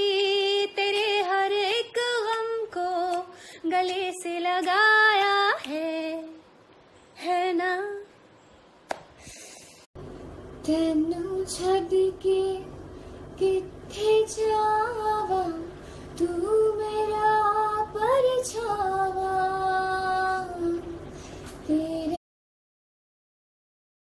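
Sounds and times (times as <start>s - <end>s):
woman singing: 0.0s - 6.5s, 7.2s - 8.2s, 10.6s - 12.8s, 13.4s - 21.0s, 21.6s - 22.2s
woman singing unaccompanied: 0.0s - 6.5s, 7.2s - 8.2s, 10.6s - 12.8s, 13.4s - 22.2s
steady low hum: 0.0s - 22.2s.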